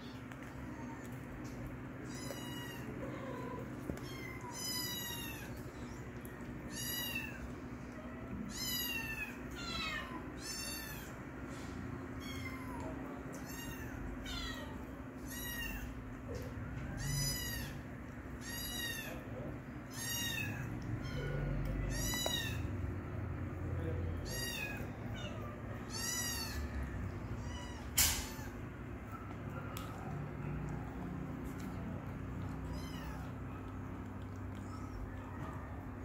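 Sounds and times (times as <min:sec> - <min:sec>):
kitten mewing: 0:18.4 - 0:22.8, 0:24.1 - 0:28.7, 0:29.5 - 0:36.0.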